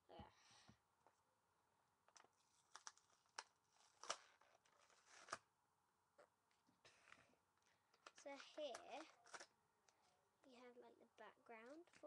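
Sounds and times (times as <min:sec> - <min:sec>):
plastic packet crinkling: 0:02.2 - 0:05.4, 0:08.0 - 0:09.5.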